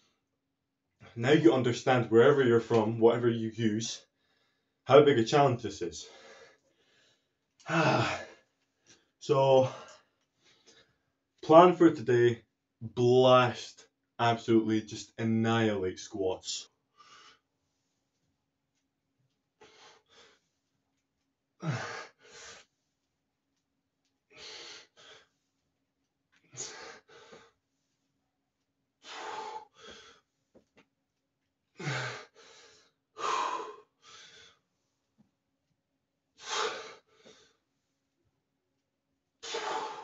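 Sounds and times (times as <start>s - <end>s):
man breathing hard: 6.0s - 11.0s, 19.6s - 20.7s, 21.6s - 23.0s, 24.3s - 25.6s, 26.4s - 28.1s, 29.0s - 30.6s, 31.8s - 35.1s, 36.4s - 38.0s, 39.4s - 40.0s.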